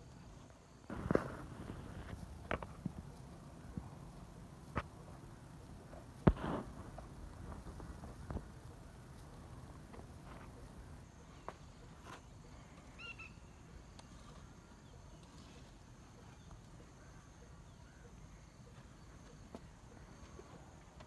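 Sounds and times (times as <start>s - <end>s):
bird chirp: 10.3s - 13.8s.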